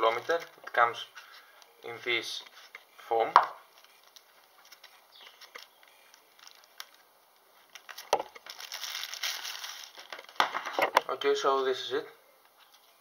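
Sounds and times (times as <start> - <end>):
plastic bag crinkling: 3.6 - 10.9.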